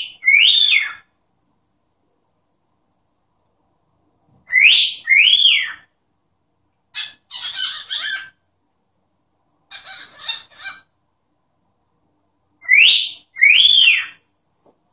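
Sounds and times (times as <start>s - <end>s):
cockatiel whistling: 0.0s - 1.0s, 4.5s - 5.9s, 12.6s - 14.2s
cockatiel scratchy chatter: 9.7s - 10.9s.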